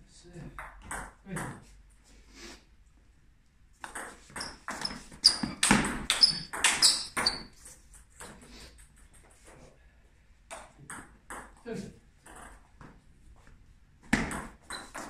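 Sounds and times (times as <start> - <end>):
ball bouncing on floor: 0.4 - 1.7, 3.8 - 9.5, 10.5 - 11.6, 12.2 - 13.0, 14.0 - 15.0
ping pong ball hitting bats: 0.5 - 1.7, 3.8 - 9.5, 10.5 - 11.6, 12.2 - 12.7, 14.0 - 15.0.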